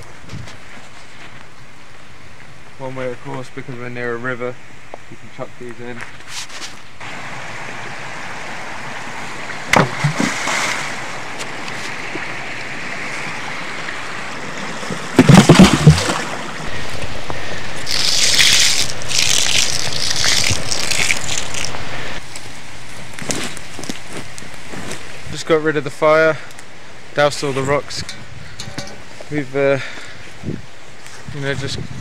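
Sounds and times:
rushing river: 7.0 - 22.2
rocks splashing into river: 9.5 - 16.7
rocks knocking: 9.7 - 10.8, 14.8 - 16.7
water spattering on ground: 17.8 - 21.8.

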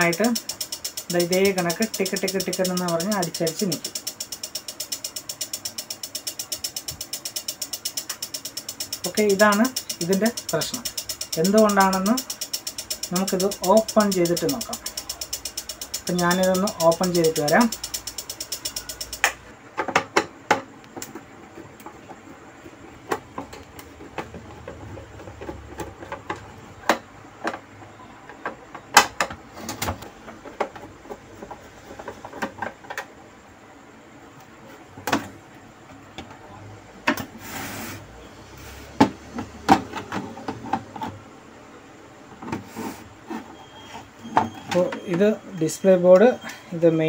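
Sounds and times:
relays clicking rapidly: 0.0 - 19.4.

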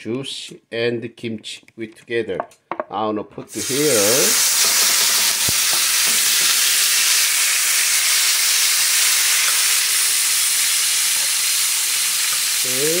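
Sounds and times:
utensil stirring in a pan: 3.5 - 7.4
food sizzling in a frying pan: 3.5 - 13.0.

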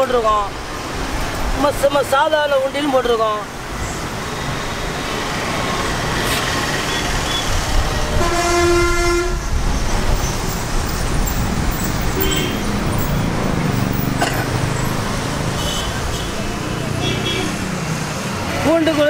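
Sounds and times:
road traffic: 0.0 - 19.0
vehicle horn: 8.1 - 9.4, 12.2 - 12.7, 15.6 - 16.4, 17.0 - 17.6.

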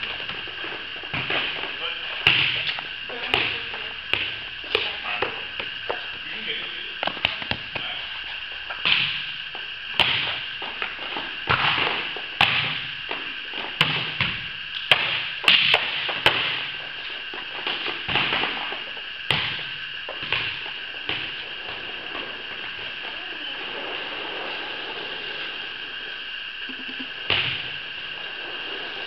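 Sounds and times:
volleyballs smacked and bouncing: 1.1 - 6.0, 7.0 - 8.0, 8.8 - 9.3, 9.9 - 10.8, 11.4 - 16.7, 17.6 - 18.7, 19.3 - 21.7, 26.9 - 27.8.

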